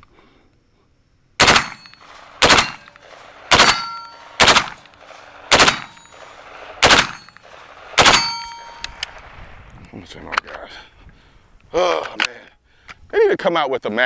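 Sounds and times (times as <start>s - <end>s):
rifle shots with echo: 1.4s - 9.5s.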